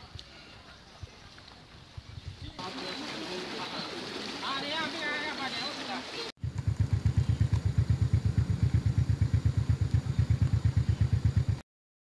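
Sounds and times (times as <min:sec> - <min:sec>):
small engine idling: 0:06.4 - 0:11.6.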